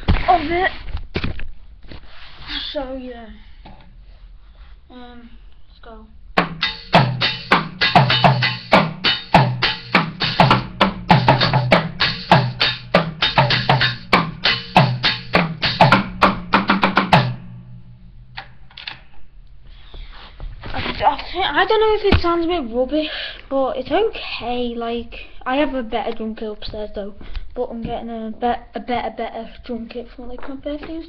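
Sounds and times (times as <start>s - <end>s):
drumsticks hitting small drums: 6.4s - 17.4s.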